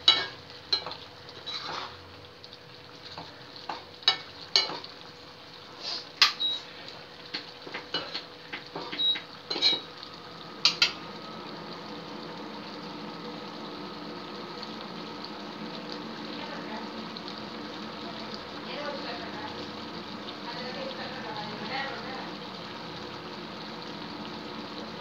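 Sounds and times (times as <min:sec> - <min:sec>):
gravy simmering hiss: 0:00.0 - 0:25.0
metal ladle scraping pan: 0:01.4 - 0:02.0.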